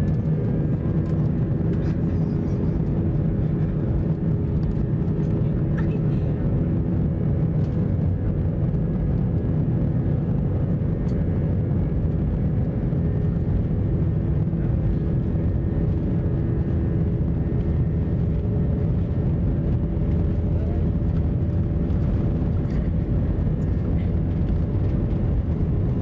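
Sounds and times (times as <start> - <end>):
jet engine low rumble: 0.0 - 26.0
steady hum tones: 0.0 - 26.0.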